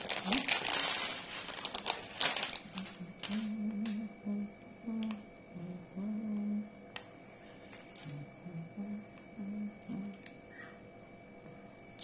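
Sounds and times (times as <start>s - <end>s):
plastic packet crinkling: 0.0s - 3.5s
person humming a tune: 2.6s - 6.8s, 8.0s - 10.8s.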